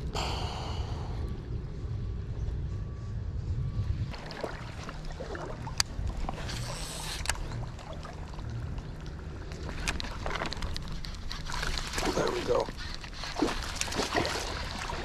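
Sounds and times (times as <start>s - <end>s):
creek water splashing: 7.7s - 15.0s.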